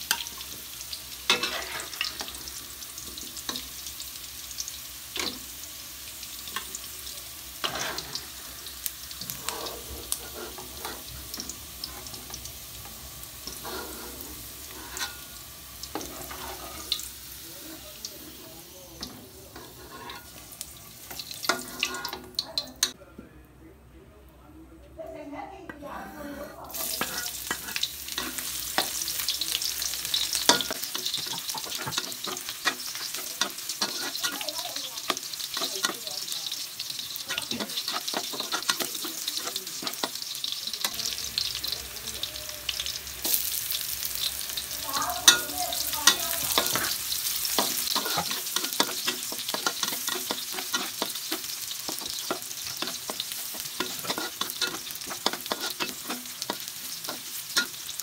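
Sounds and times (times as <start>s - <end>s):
garlic and onion sizzling in oil: 0.0s - 23.0s, 25.7s - 58.0s
metal spatula scraping a wok: 1.3s - 2.6s, 7.6s - 12.5s, 13.3s - 17.8s, 19.0s - 23.0s, 26.0s - 29.0s, 29.8s - 36.0s, 36.9s - 41.5s, 42.9s - 58.0s.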